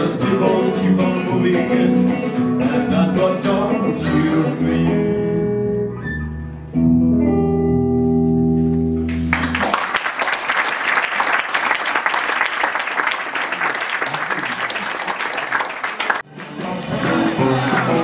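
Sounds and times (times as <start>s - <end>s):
blues band playing: 0.0s - 9.6s, 16.1s - 18.0s
audience applauding: 9.1s - 18.0s.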